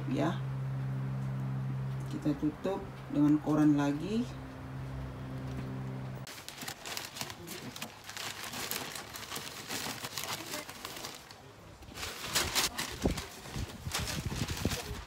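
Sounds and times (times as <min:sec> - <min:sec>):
newspaper crinkling and rustling: 0:06.3 - 0:15.0.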